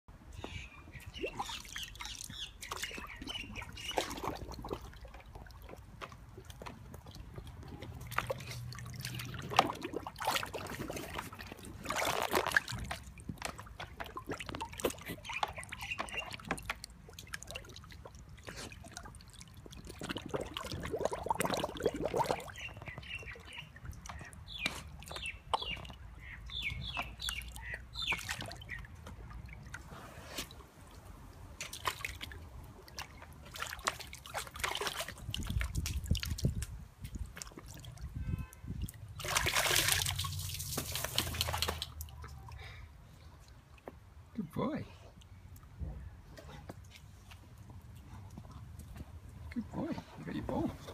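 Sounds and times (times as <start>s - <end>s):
water splashing in a plastic tub: 0.4s - 42.7s, 49.2s - 50.9s
hose trickling into tub: 1.1s - 26.0s, 28.0s - 42.1s.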